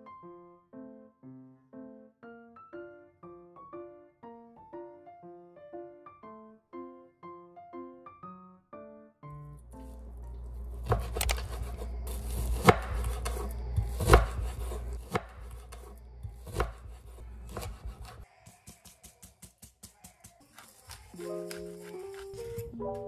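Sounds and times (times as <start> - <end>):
low steady hum: 9.5 - 18.2.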